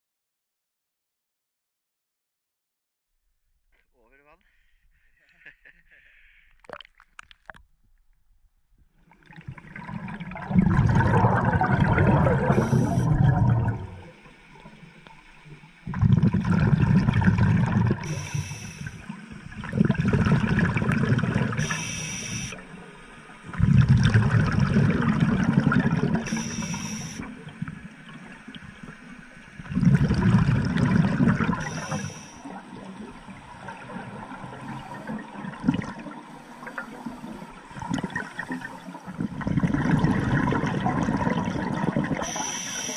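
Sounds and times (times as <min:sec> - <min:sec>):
hissing regulator inhalations: 0:04.4 - 0:06.6, 0:12.5 - 0:13.2, 0:18.0 - 0:19.3, 0:21.5 - 0:22.6, 0:26.2 - 0:27.3, 0:31.5 - 0:32.5, 0:42.2 - 0:42.9
bubbling exhalations underwater: 0:06.5 - 0:07.6, 0:09.3 - 0:14.1, 0:15.8 - 0:22.6, 0:23.5 - 0:27.4, 0:29.6 - 0:42.9.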